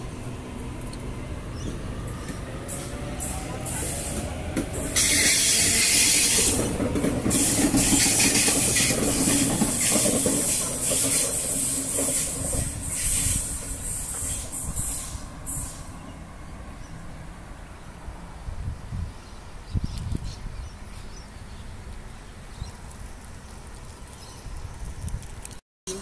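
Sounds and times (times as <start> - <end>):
electric train motors whining: 0.0 - 15.9
wheels rumbling on rails: 0.0 - 25.2
loud hiss: 2.6 - 6.6, 7.3 - 16.0.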